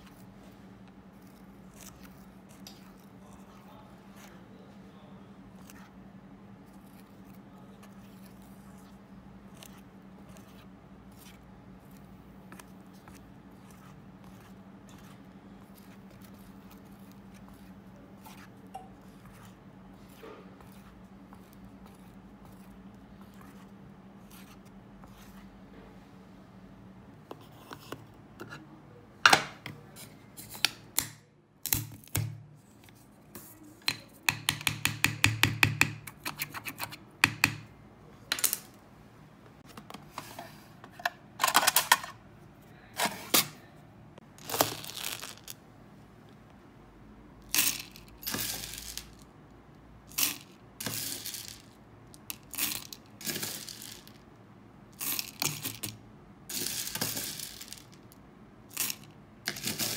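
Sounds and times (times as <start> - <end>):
wax beads rattling in metal pot: 44.4 - 45.6, 47.5 - 49.2, 50.1 - 51.7, 52.3 - 54.2, 55.0 - 55.9, 56.5 - 58.1, 58.7 - 59.9.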